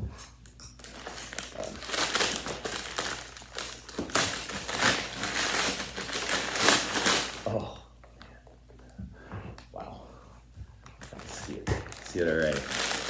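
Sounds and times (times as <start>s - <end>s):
packing paper rustling: 0.8s - 7.5s, 11.0s - 13.0s.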